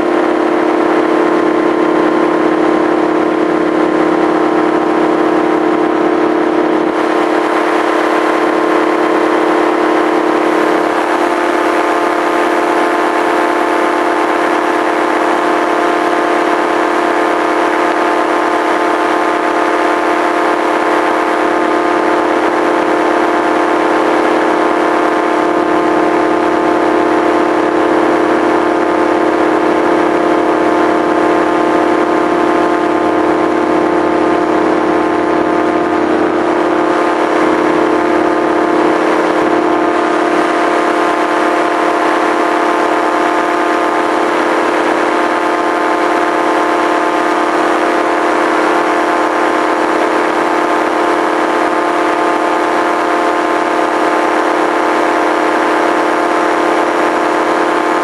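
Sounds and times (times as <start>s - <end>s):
small aircraft engine drone: 0.0s - 58.0s.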